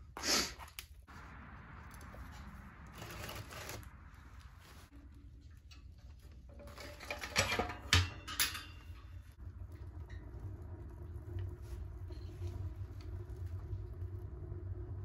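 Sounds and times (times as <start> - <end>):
kindling fire crackling: 0.2 - 15.0
stove low rumble: 0.8 - 15.0
sharp metal clanks: 7.0 - 9.4.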